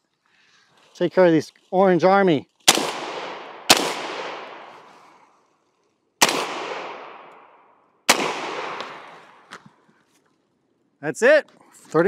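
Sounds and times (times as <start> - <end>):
rifle shots echoing: 2.6 - 4.9, 6.2 - 9.5.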